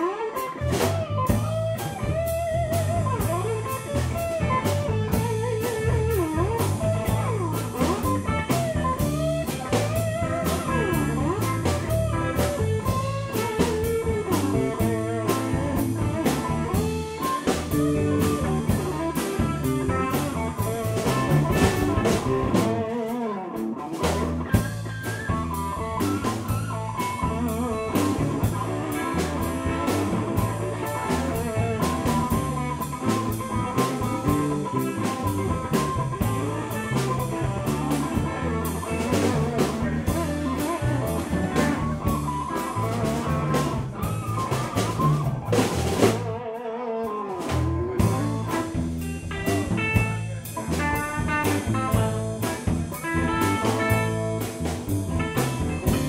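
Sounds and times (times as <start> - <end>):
drum kit beat: 0.0 - 46.5, 47.4 - 56.0
electric guitars: 0.0 - 56.0.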